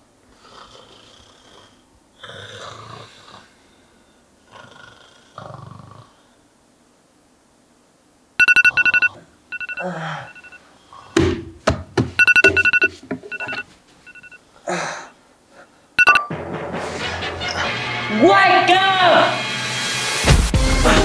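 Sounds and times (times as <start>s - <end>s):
smartphone ringing: 8.4s - 10.6s, 12.2s - 14.4s, 16.0s - 16.3s.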